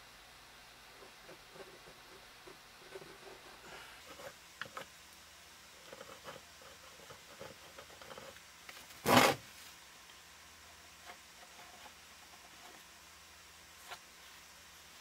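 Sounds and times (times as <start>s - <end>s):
plastic bucket scraping: 8.9s - 9.5s.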